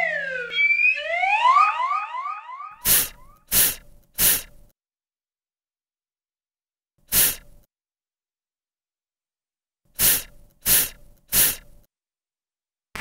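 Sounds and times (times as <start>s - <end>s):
person making breathy f sounds: 2.8s - 4.7s, 7.1s - 7.6s, 10.0s - 11.8s.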